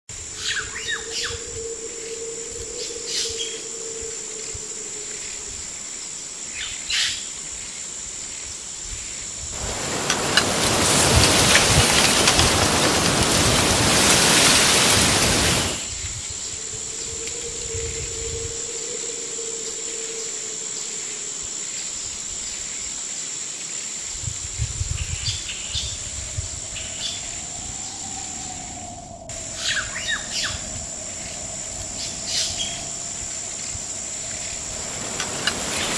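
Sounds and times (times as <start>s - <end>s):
loud rushing noise: 9.6s - 15.9s.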